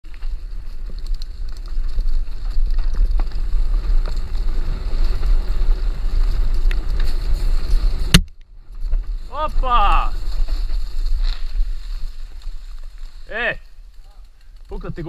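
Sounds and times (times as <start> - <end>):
bike rattling over dirt trail: 0.0 - 15.0.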